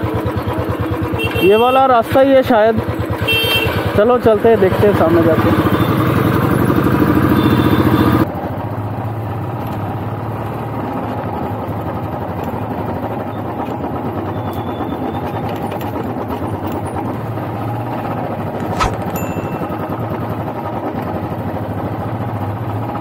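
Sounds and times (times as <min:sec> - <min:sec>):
motorcycle engine running: 0:00.0 - 0:23.0
brief knock: 0:18.6 - 0:19.5.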